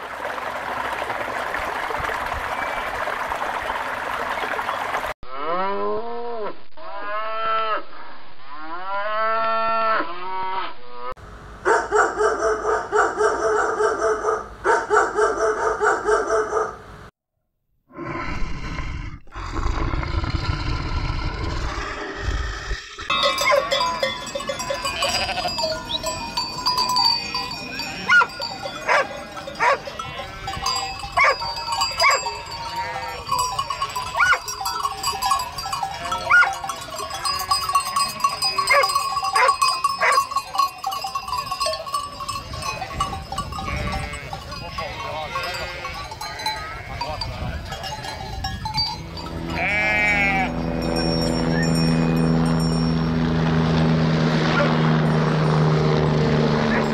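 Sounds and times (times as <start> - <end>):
low rumbling: 17.9 - 27.7
flock of sheep bleating: 24.7 - 25.9, 29.6 - 31.2, 32.3 - 36.6, 43.5 - 47.1, 49.5 - 50.6.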